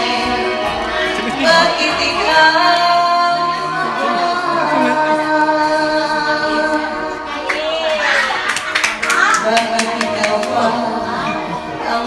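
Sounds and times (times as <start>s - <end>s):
woman singing a slow ballad: 0.0s - 7.2s, 9.4s - 12.0s
backing track music: 0.0s - 12.0s.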